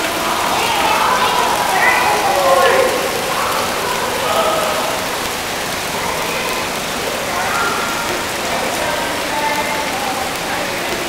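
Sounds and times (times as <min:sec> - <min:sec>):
faint distant voices: 0:00.0 - 0:11.0
water running and splashing: 0:00.0 - 0:11.0.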